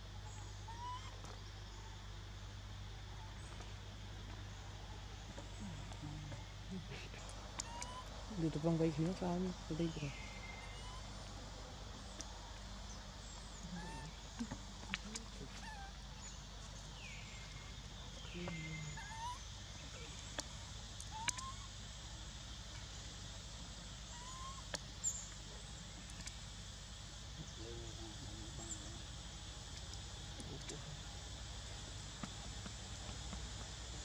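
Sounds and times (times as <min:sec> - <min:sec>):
low background hum: 0:00.0 - 0:34.0
falling animal call: 0:07.6 - 0:08.1, 0:24.1 - 0:24.7.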